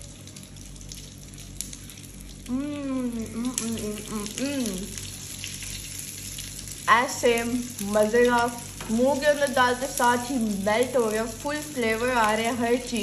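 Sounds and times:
person humming mmm while eating: 2.3 - 5.0.

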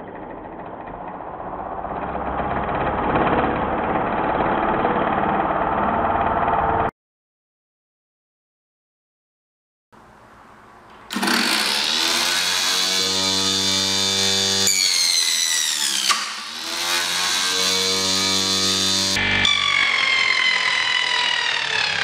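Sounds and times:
saw blade cutting panel: 11.0 - 22.0
table saw motor whining: 11.1 - 22.0.

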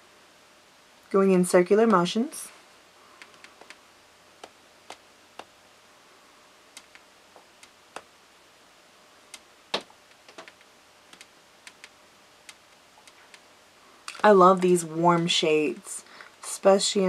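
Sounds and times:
faint small clicks: 10.1 - 13.4.

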